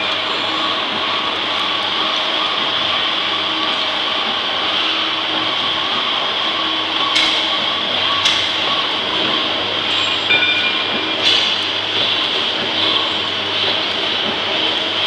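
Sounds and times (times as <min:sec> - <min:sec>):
packing machine running: 0:00.0 - 0:15.0.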